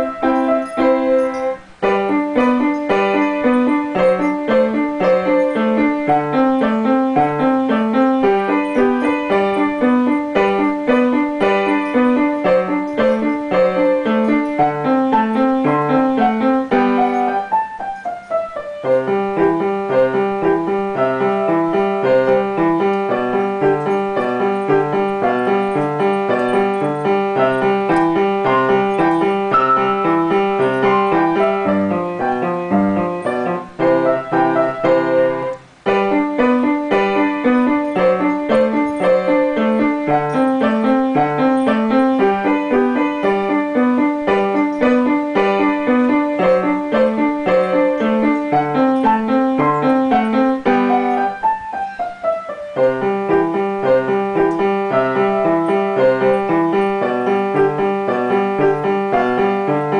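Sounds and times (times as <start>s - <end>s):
upright piano playing: 0.0s - 59.9s.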